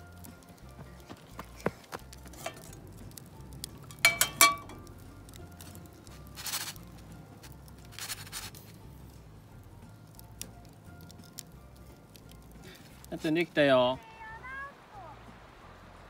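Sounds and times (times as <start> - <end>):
wood fire crackling: 0.0 - 16.0
metal lid clinking on pan: 2.4 - 2.8, 3.9 - 4.8.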